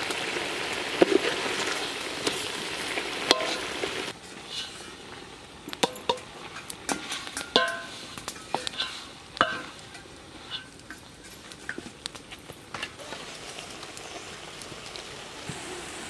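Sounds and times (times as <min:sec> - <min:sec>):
ladle knocking metal pot: 0:03.3 - 0:03.6, 0:05.7 - 0:11.0.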